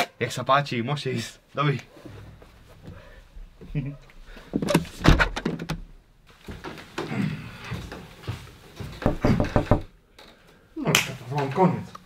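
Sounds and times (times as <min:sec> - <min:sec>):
door shutting thuds: 0:09.0 - 0:09.9.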